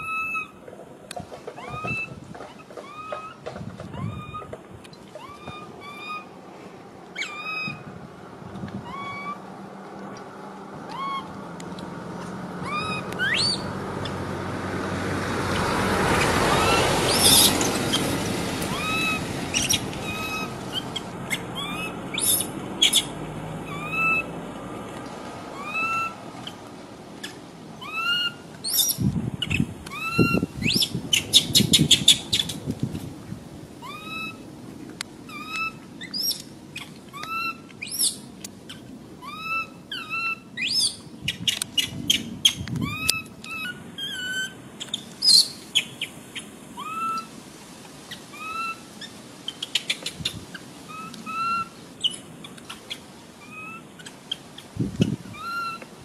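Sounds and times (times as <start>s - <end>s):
baby monkey whistling calls: 0.0s - 0.6s, 1.6s - 2.2s, 2.8s - 3.4s, 4.0s - 4.5s, 5.2s - 6.3s, 7.2s - 7.8s, 8.9s - 9.4s, 12.6s - 13.7s, 16.5s - 18.0s, 18.7s - 23.1s, 23.7s - 24.3s, 25.6s - 26.2s, 27.8s - 32.6s, 33.8s - 34.4s, 35.3s - 36.4s, 37.1s - 46.0s, 46.8s - 47.3s, 48.3s - 50.1s, 50.9s - 54.4s, 55.3s - 55.8s.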